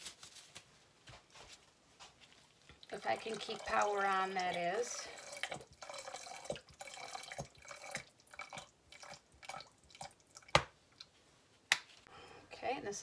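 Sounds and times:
oil dripping into bucket: 2.8 - 10.5.

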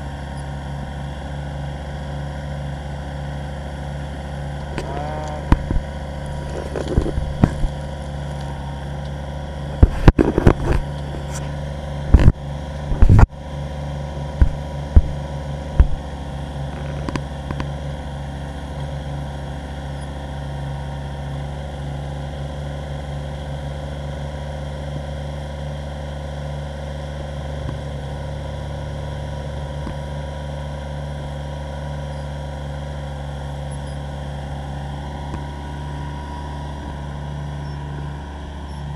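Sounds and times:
tractor diesel engine running: 0.0 - 38.9
backhoe bucket clanking: 4.7 - 8.6.

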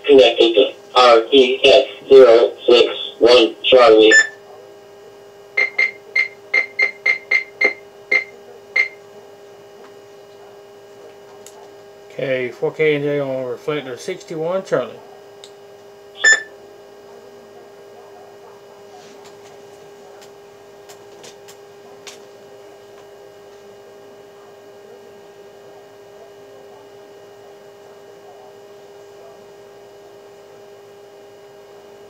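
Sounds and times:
electrical hum: 0.0 - 32.0
short electronic beep: 4.1 - 4.4, 16.2 - 16.5.

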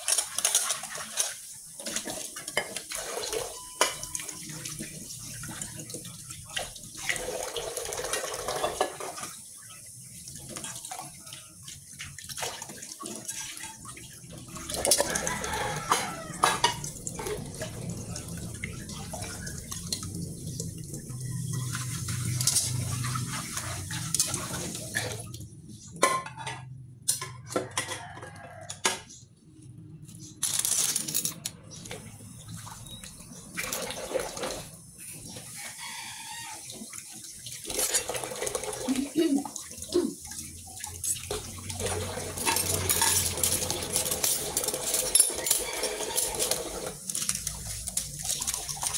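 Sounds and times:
dishware clattering against sink: 0.0 - 6.0, 7.0 - 9.3, 12.8 - 20.0, 26.0 - 29.1, 41.0 - 48.9
tap water running into sink: 0.0 - 25.4, 31.9 - 48.9.

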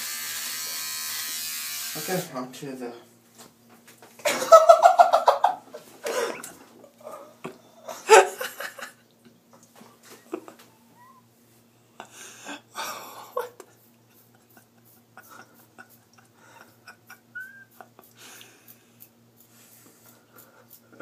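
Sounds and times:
stifled laughter: 7.8 - 9.0, 12.9 - 18.2.

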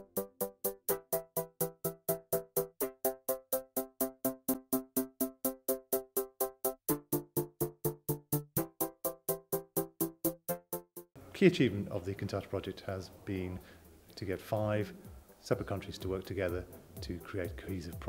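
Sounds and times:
repeated synthesizer chord: 0.0 - 11.2.

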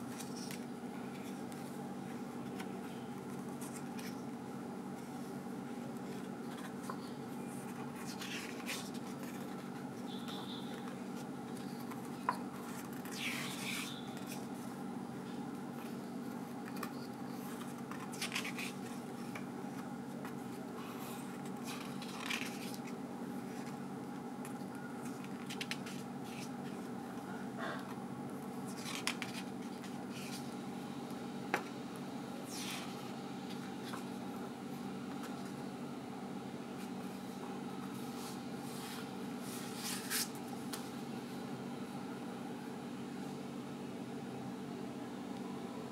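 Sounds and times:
steady low hum: 0.0 - 45.9
paper pages rustling: 5.0 - 14.6, 15.8 - 23.8, 24.4 - 26.9, 28.6 - 30.6.

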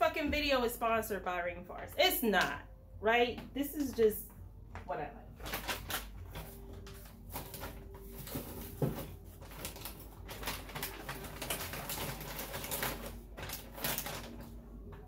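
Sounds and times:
plastic food packs rustling: 5.4 - 15.0.

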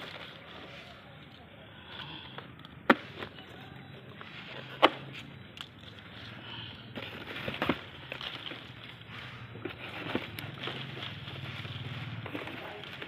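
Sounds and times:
leaves and cardboard box rustling: 0.0 - 1.4, 5.8 - 13.0.

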